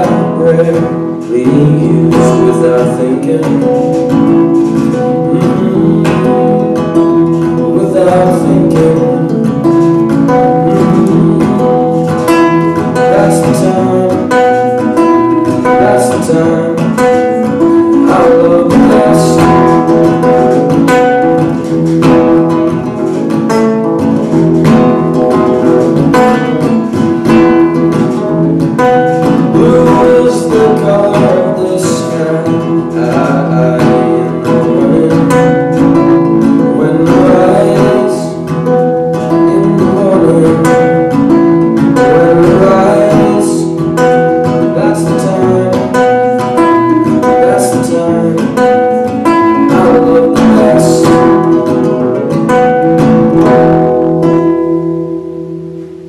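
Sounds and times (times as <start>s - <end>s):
man singing: 0.0s - 54.5s
acoustic guitar strumming: 0.0s - 56.0s.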